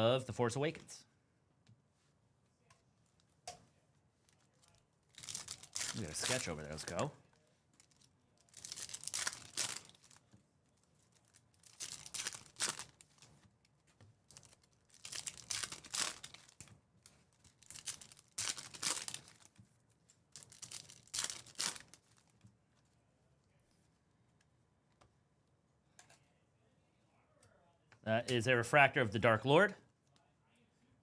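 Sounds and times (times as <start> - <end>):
foil wrappers tearing and crinkling: 5.1 - 7.0, 7.8 - 10.2, 11.1 - 13.3, 14.4 - 16.6, 17.4 - 19.5, 20.3 - 22.3.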